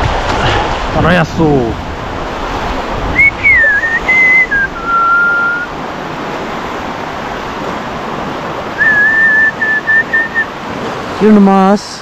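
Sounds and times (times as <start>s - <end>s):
river water rushing: 0.0s - 12.0s
person whistling a held note: 3.2s - 5.7s, 8.8s - 10.5s.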